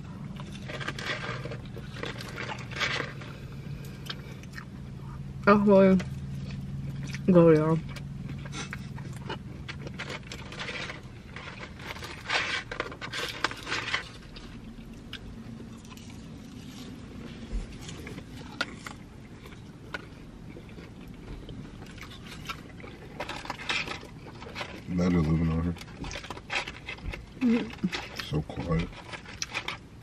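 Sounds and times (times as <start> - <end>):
low steady hum: 0.0 - 30.0
paper bag and wrappers rustling: 8.5 - 14.8, 22.1 - 30.0.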